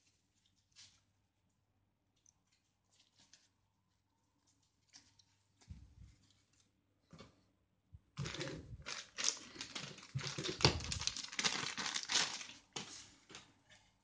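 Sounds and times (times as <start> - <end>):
packaging crinkling and rustling: 8.2 - 13.4.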